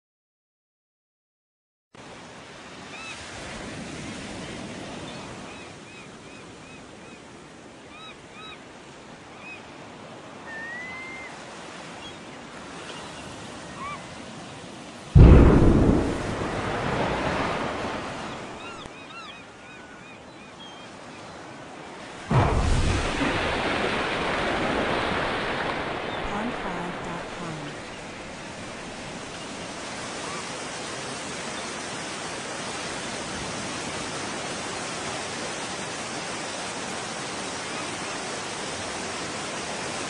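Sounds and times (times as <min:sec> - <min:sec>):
wind: 0:01.9 - 0:40.0
surf: 0:09.2 - 0:40.0
explosion boom rumbling: 0:15.2 - 0:18.2, 0:22.3 - 0:25.0.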